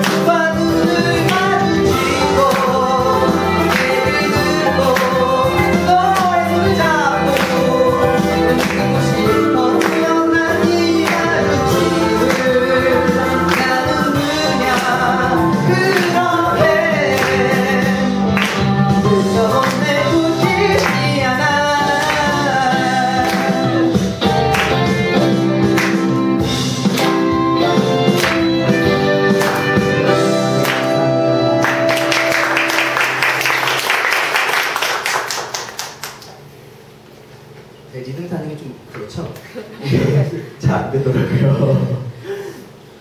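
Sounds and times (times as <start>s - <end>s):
man singing into microphone: 0.0s - 24.2s
instrumental accompaniment: 0.0s - 34.3s
audience applause: 30.6s - 36.5s.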